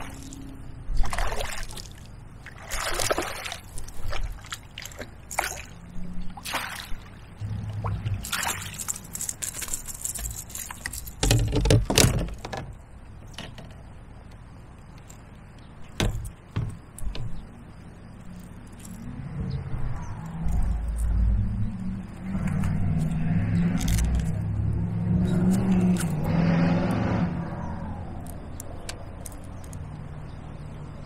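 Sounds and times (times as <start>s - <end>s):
fish thrashing at water surface: 0.0s - 12.6s
water splashing and sloshing: 0.0s - 19.2s.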